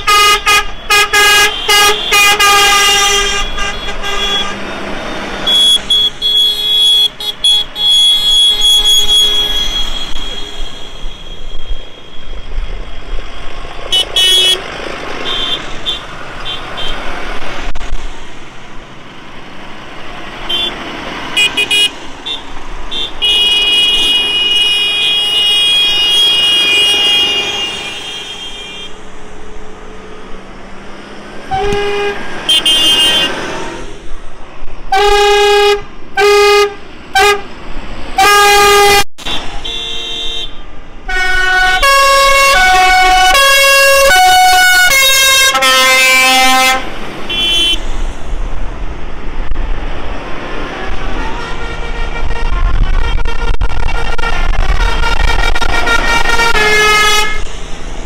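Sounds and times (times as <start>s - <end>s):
high horn tone: 0.0s - 4.7s, 5.4s - 12.6s, 13.8s - 14.6s, 21.4s - 29.0s, 31.5s - 33.4s, 38.2s - 48.1s, 51.0s - 57.7s
short horn blasts: 0.0s - 4.7s, 31.5s - 33.4s, 38.2s - 48.1s, 51.2s - 57.6s
tractor engines running: 0.0s - 35.1s
musical horn playing notes: 41.1s - 47.8s, 51.2s - 57.4s.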